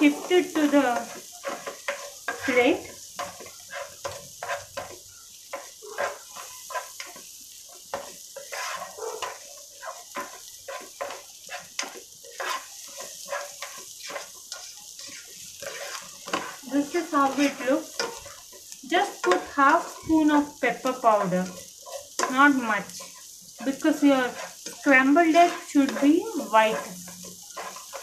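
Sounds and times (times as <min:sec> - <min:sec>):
faint frying sizzle: 0:00.0 - 0:28.0
spatula scraping a pan: 0:00.0 - 0:28.0.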